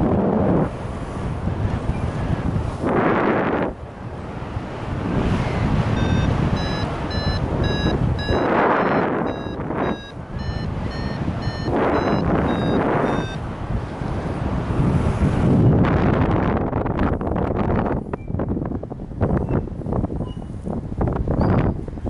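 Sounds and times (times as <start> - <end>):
gusting wind on microphone: 0.0 - 22.0
variometer short beeps: 5.9 - 13.4.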